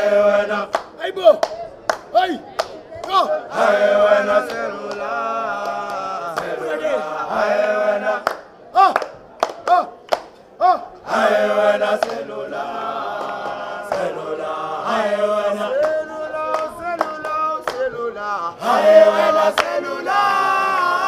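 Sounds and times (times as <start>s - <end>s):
song with singing: 3.0s - 9.0s, 10.6s - 21.0s.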